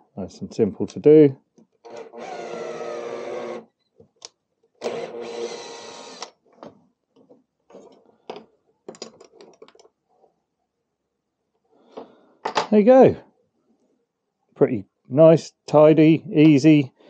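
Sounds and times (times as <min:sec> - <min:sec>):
cordless drill running: 0:01.9 - 0:03.6, 0:04.8 - 0:06.3.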